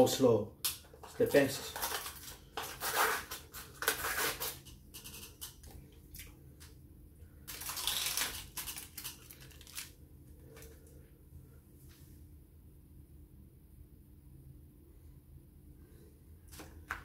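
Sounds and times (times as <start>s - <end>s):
plastic crinkling: 1.0s - 5.7s, 7.4s - 10.8s.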